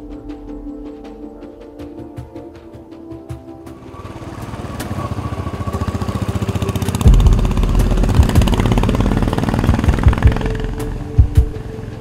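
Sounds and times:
motorcycle engines passing: 3.8 - 12.0
heavy low thumps: 7.1 - 11.6.

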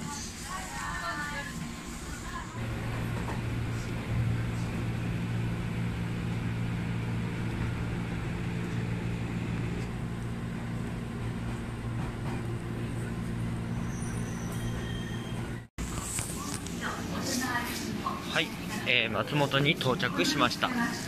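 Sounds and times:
electric train humming: 0.0 - 15.7.

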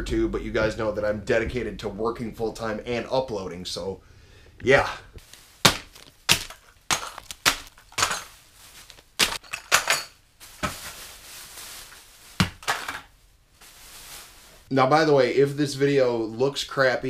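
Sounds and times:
plastic packs slapping on wood: 5.2 - 14.4
plastic rustle: 5.2 - 14.7.

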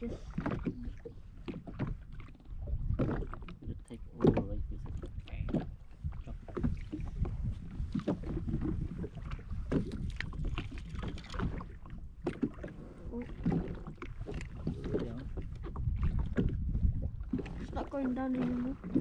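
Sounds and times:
water slapping against hull: 0.0 - 19.0.

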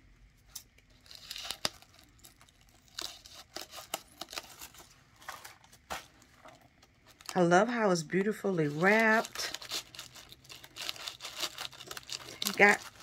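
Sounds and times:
scissors snipping paper: 0.5 - 4.8, 8.6 - 13.0
paper crinkling: 0.5 - 13.0.

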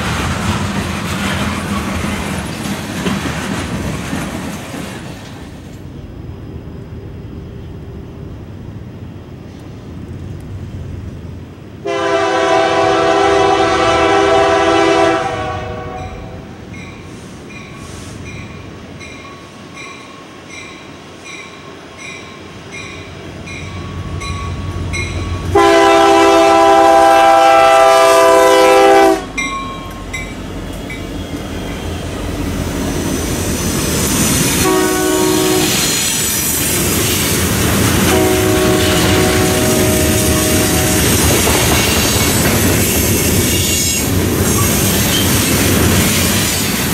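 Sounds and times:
train rumble and wheel clatter: 0.0 - 46.9
locomotive air horn: 11.8 - 16.5, 25.5 - 29.4, 34.6 - 35.9, 38.1 - 41.2.

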